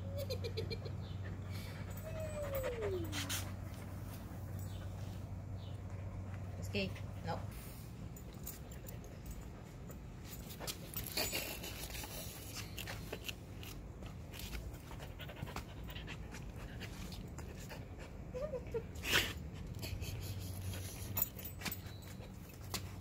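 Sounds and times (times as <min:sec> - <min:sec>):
dog panting: 0:01.0 - 0:12.8, 0:14.6 - 0:18.3
dog whining faintly: 0:01.2 - 0:05.0.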